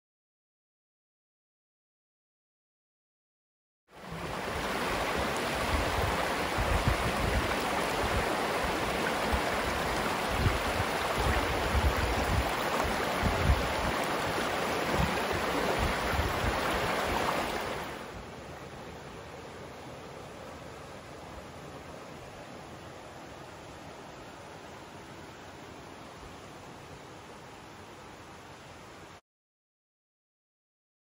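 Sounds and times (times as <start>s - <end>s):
stream rushing over rocks: 4.0s - 29.2s
wind buffeting microphone: 4.5s - 17.9s.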